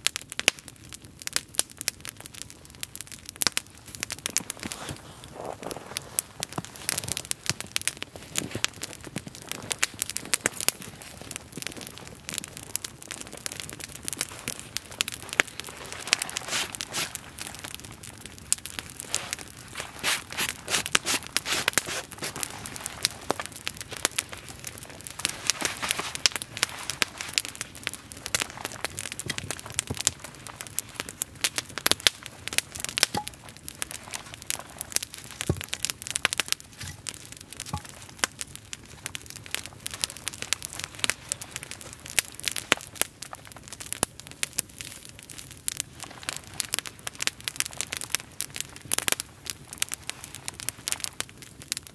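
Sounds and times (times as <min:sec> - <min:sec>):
campfire crackling and popping: 0:00.0 - 0:51.9
soft rush of flame: 0:03.5 - 0:44.0.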